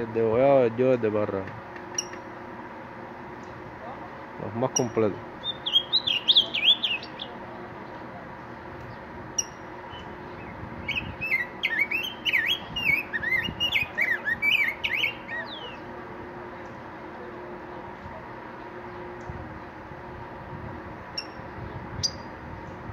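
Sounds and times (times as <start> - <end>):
bird singing whistled notes: 4.8 - 7.4, 9.4 - 15.9, 22.0 - 22.3.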